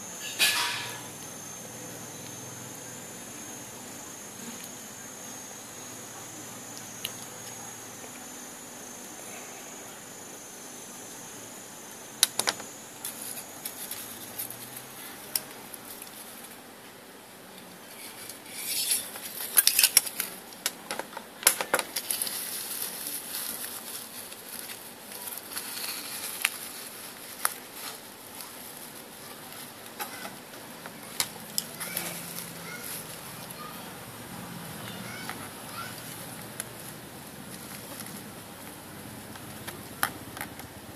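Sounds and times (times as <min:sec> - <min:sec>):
metal parts clicking and clinking: 0:17.9 - 0:20.4.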